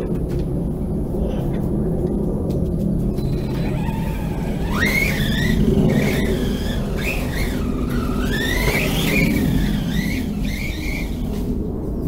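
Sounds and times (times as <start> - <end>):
steady low rumble: 0.0 - 12.0
rc truck electric motor whining: 3.1 - 11.6.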